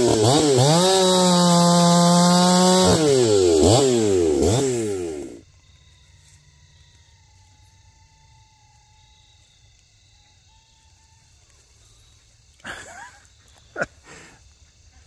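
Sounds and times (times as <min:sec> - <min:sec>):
chainsaw engine revving: 0:00.0 - 0:05.4.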